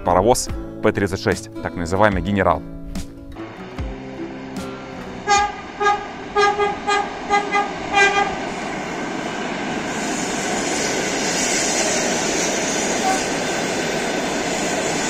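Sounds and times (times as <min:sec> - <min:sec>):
train rushing past on rails: 0:03.4 - 0:15.0
train horn toots: 0:05.1 - 0:08.6, 0:12.9 - 0:13.5.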